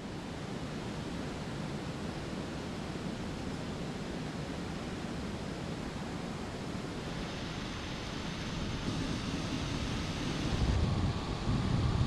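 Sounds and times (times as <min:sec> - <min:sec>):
steady rushing noise: 0:05.1 - 0:12.0.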